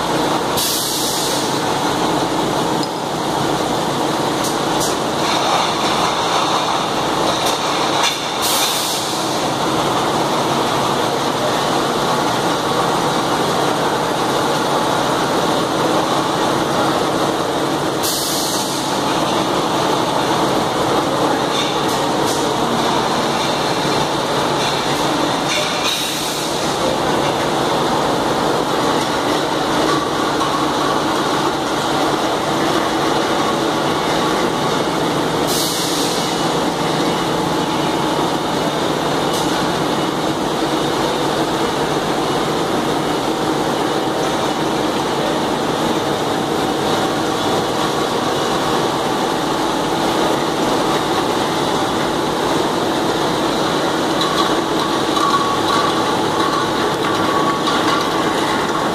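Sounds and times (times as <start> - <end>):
filling machinery noise: 0.0 - 58.9.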